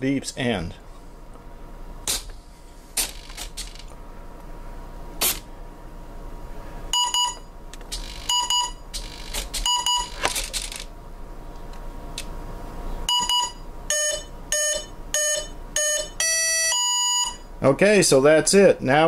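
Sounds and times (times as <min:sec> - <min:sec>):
motor double beeps: 0:06.9 - 0:10.2, 0:13.1 - 0:17.5.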